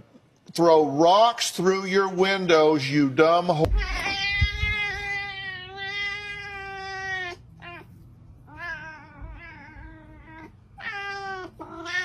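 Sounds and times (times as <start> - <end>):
cat yowling meows: 3.8 - 7.9, 8.5 - 12.0.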